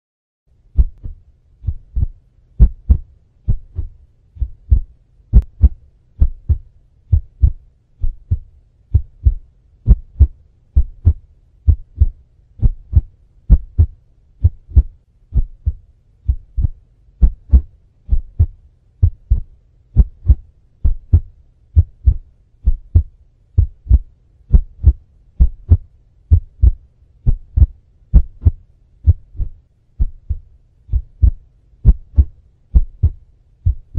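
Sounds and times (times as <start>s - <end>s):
faint low hum: 0.5s - 33.9s
heartbeat thumps: 0.7s - 33.9s.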